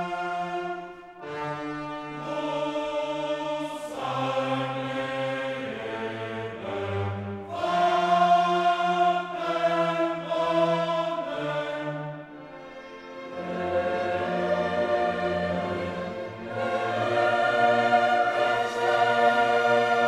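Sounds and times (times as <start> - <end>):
choral music with orchestra: 0.0 - 20.0.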